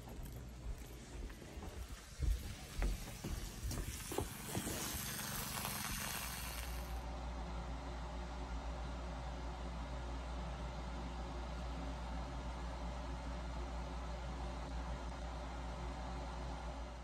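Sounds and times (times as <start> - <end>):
water hissing: 2.9 - 7.0.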